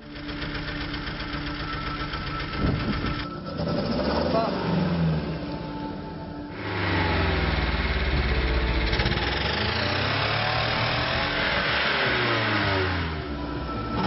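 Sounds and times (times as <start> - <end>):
car engine revving: 0.0 - 14.0.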